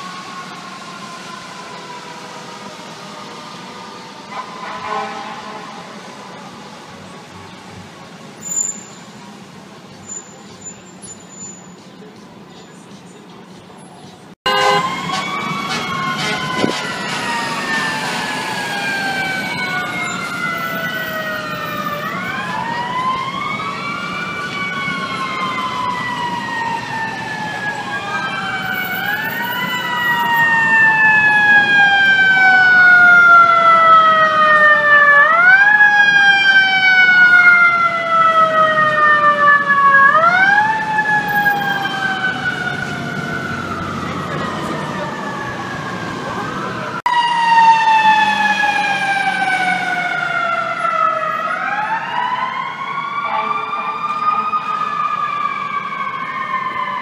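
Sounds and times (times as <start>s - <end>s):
sirens wailing: 0.0s - 57.0s.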